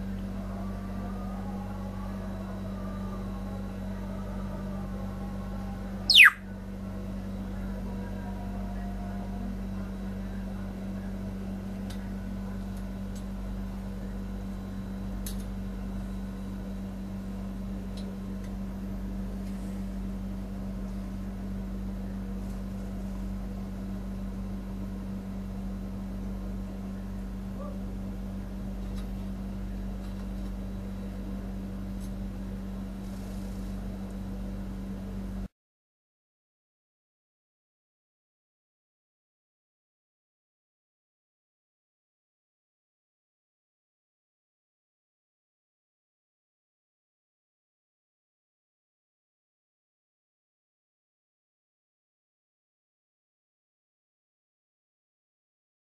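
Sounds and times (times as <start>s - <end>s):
low mechanical hum: 0.0s - 35.5s.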